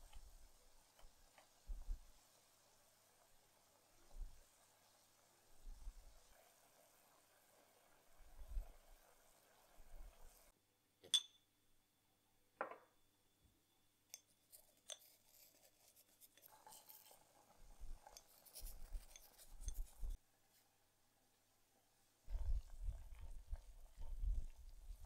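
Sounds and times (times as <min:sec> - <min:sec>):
water simmering in saucepan: 0:00.0 - 0:10.6, 0:16.1 - 0:25.0
glass jar click: 0:11.0 - 0:11.4
spoon scooping dry tea leaves: 0:14.1 - 0:20.2.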